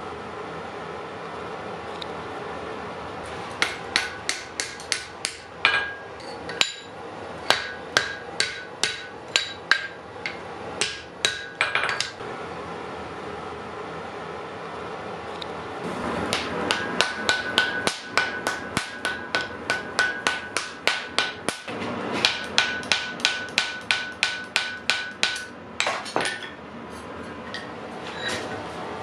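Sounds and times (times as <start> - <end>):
hammer striking iron on anvil: 3.6 - 12.2, 16.3 - 26.6
anvil ringing: 16.4 - 21.6.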